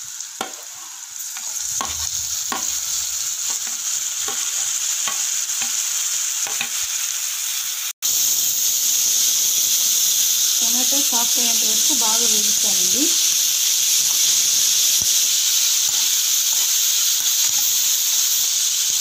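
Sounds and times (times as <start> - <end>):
tomatoes sizzling in oil: 0.0 - 19.0
spoon scraping and tapping pan: 0.4 - 5.8, 6.4 - 6.8.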